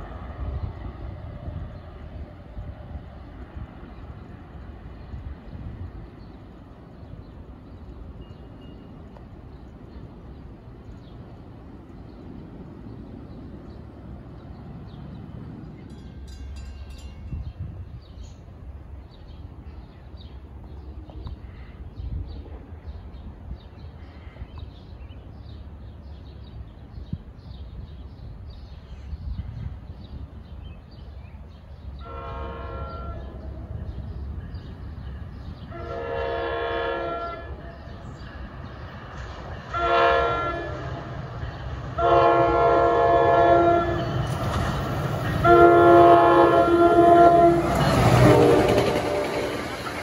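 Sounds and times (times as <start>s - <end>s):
diesel locomotive rumble: 0.0s - 50.0s
locomotive air horn blasts: 32.0s - 33.4s, 35.7s - 37.8s, 39.7s - 41.0s, 42.0s - 44.2s, 45.3s - 49.7s.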